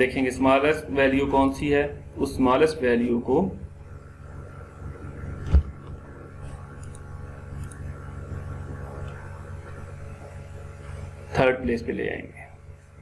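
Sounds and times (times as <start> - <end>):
low electrical hum: 0.0 - 13.0
thump: 5.4 - 5.7.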